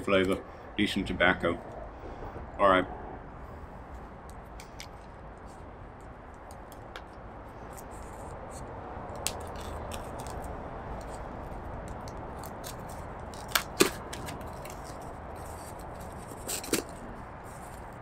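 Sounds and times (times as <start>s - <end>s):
knife cutting tape: 7.7s - 17.9s.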